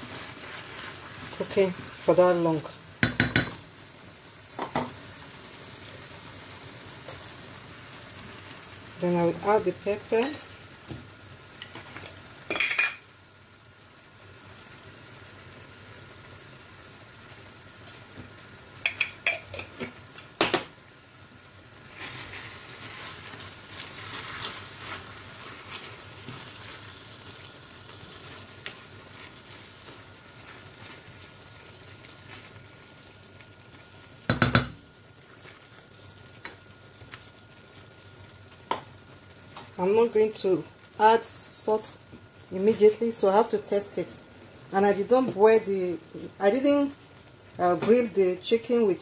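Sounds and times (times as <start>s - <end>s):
wooden spoon stirring thick sauce: 0.0s - 2.4s, 21.8s - 33.9s
faint steady sizzle: 0.0s - 49.0s
spoon knocking against pot: 3.0s - 3.6s, 34.3s - 34.8s.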